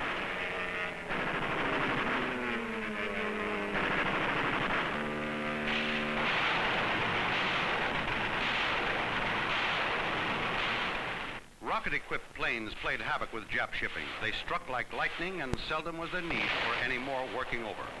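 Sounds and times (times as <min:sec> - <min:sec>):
aircraft engine whine: 0:00.0 - 0:08.3
machine-gun fire: 0:00.0 - 0:11.4, 0:15.5 - 0:18.0
steady droning tone: 0:00.0 - 0:11.4.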